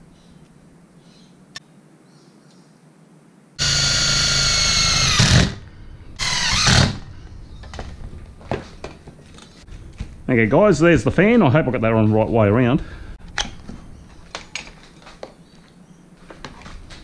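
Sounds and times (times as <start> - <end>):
impact driver whining: 3.6 - 7.1.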